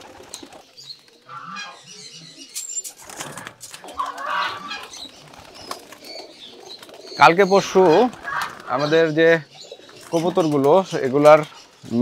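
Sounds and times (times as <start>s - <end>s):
pigeons flapping wings: 0.0s - 1.2s, 2.9s - 9.1s
pigeons cooing: 0.0s - 12.0s.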